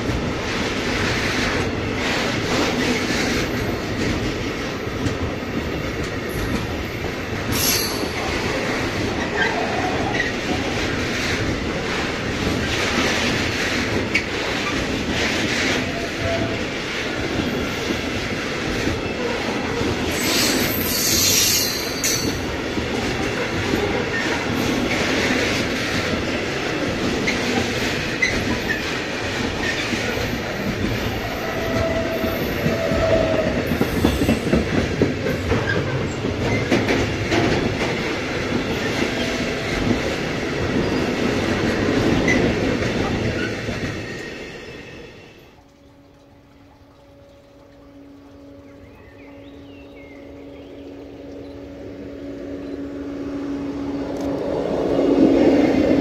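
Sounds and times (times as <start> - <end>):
train wagons rumbling over rails: 0.0 - 56.0
high wheel squeal: 7.5 - 8.2, 20.1 - 22.4.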